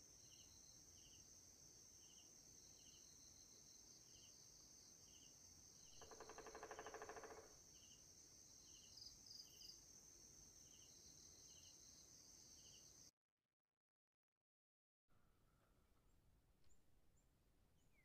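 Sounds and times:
cricket chirps: 0.0s - 13.1s
rapidly pulsing insect call: 0.0s - 13.1s.

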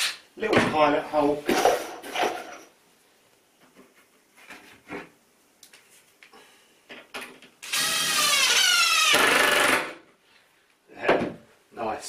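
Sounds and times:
cordless drill boring into wood: 7.6s - 9.9s.

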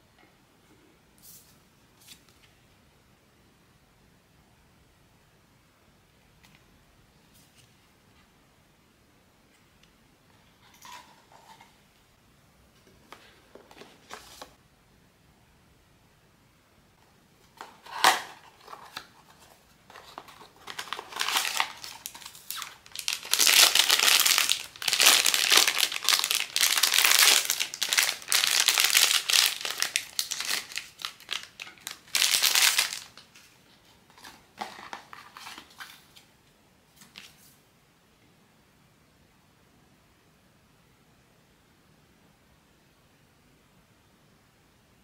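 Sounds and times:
packaging wrapper crinkling: 17.6s - 33.5s.

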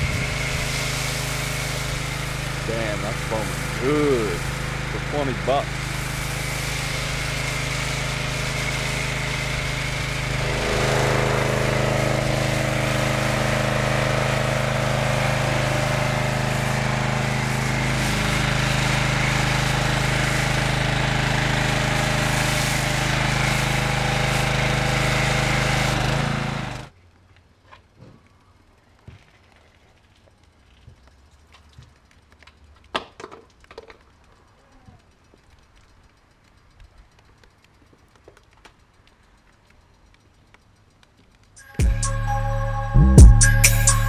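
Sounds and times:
foam cannon hissing: 0.0s - 26.9s
pressure washer running: 0.0s - 26.9s.

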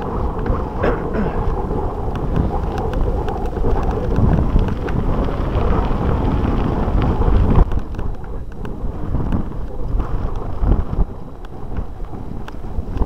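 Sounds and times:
bike clicking rattles: 0.0s - 13.0s
tyre noise on dirt: 0.0s - 13.0s
wind rumbling on microphone: 0.0s - 13.0s.

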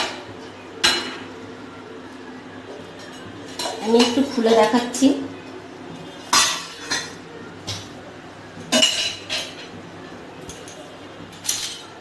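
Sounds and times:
steel dishes clinking: 8.7s - 9.7s.

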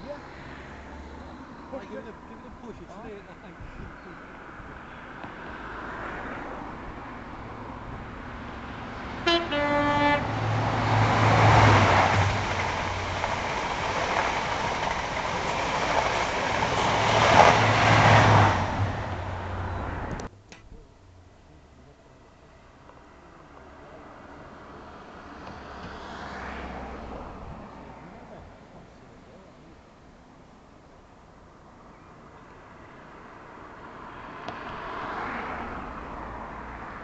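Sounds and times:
train wheel and rail rush: 7.4s - 20.3s
two-tone train horn: 9.2s - 10.4s.

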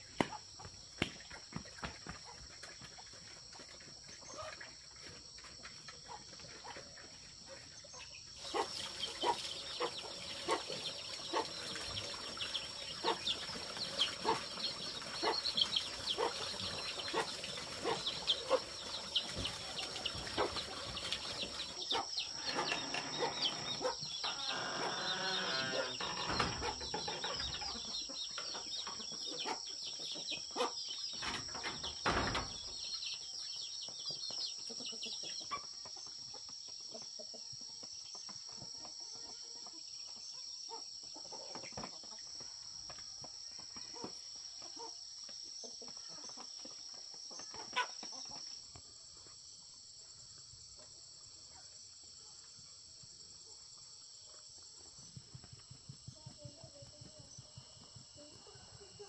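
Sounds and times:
high insect drone: 22.3s - 26.6s.

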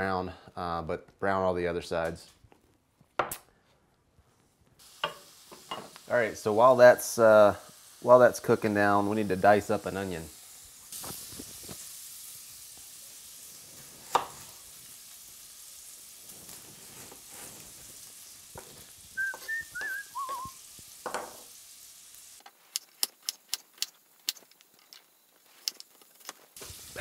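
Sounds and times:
bacon sizzling in a skillet: 4.8s - 24.5s, 25.1s - 27.0s
whistled notes: 19.2s - 20.6s.

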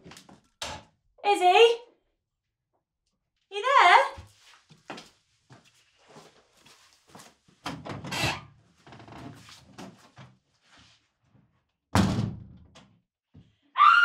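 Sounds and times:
loud sudden thud: 12.0s - 12.5s.

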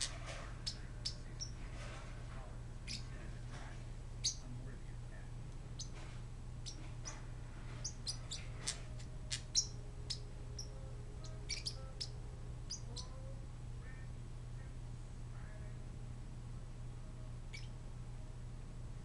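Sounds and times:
parrotlets chirping: 0.0s - 2.1s, 2.8s - 3.6s, 4.2s - 4.5s, 5.7s - 14.1s, 17.5s - 17.8s
low steady hum: 0.0s - 19.0s.

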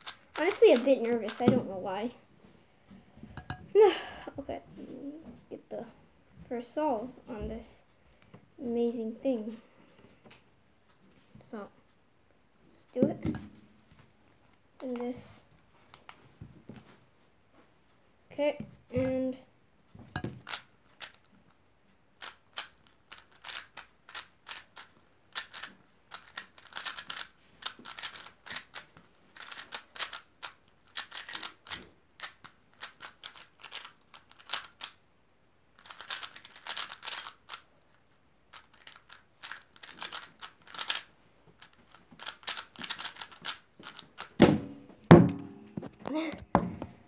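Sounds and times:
puzzle cube layers clicking: 0.0s - 1.6s, 20.4s - 21.2s, 22.2s - 35.0s, 35.8s - 37.6s, 38.5s - 44.4s
cube put down thump: 44.4s - 46.9s.

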